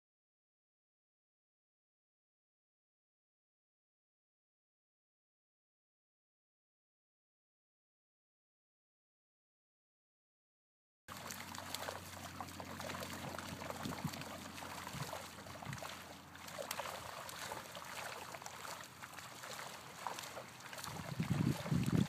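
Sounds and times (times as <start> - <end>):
fish splashing in pond: 11.1 - 22.0
water trickling: 11.1 - 22.0.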